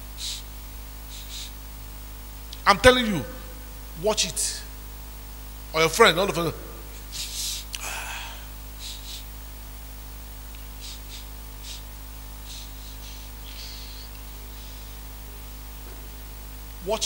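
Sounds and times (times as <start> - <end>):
electrical mains hum: 0.0 - 17.0
breathy exhale: 7.1 - 9.3.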